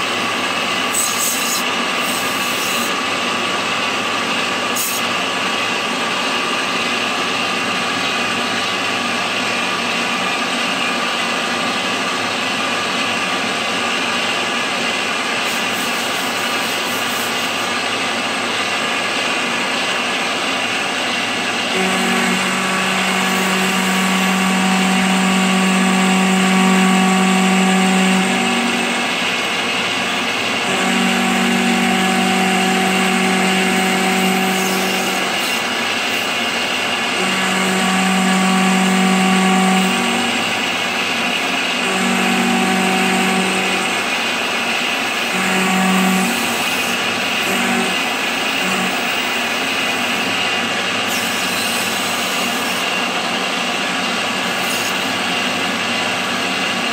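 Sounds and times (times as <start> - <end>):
milling machine cutting metal: 0.0 - 56.9
steady hum: 20.2 - 51.0.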